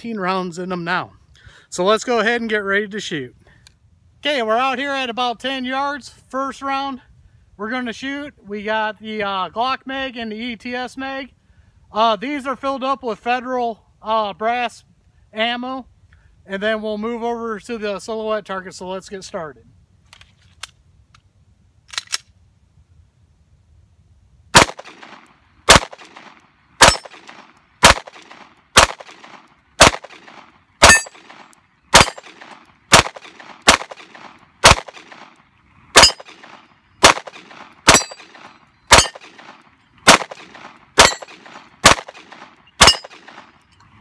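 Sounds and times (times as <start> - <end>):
pistol shots: 24.6 - 35.4, 36.0 - 43.5
bullets clanging on steel plate: 30.8 - 31.3, 36.0 - 36.4, 37.3 - 39.4, 41.0 - 41.6, 42.8 - 43.4.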